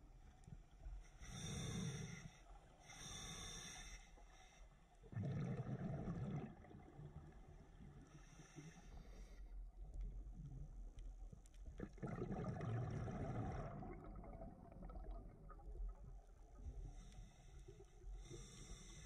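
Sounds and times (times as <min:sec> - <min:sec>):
exhaled bubbles underwater: 0:05.1 - 0:08.0, 0:11.6 - 0:17.1.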